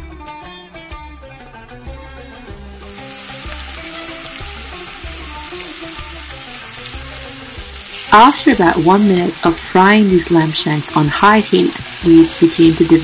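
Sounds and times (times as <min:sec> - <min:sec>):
quiet background music with beat: 0:00.0 - 0:10.9
meat sizzling in oil: 0:02.7 - 0:13.0.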